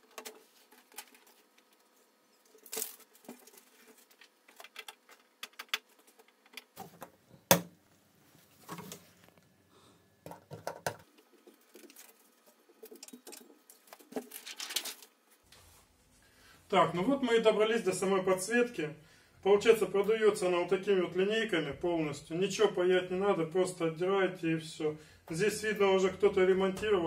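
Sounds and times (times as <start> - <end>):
plastic sheet rustling: 13.6 - 15.4.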